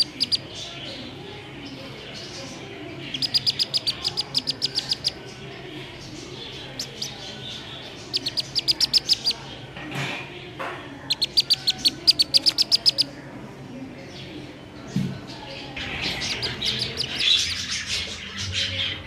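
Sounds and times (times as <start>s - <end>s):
duckling distress peeps: 0.0s - 0.5s, 3.1s - 5.2s, 8.0s - 9.4s, 11.1s - 13.1s, 16.1s - 17.4s.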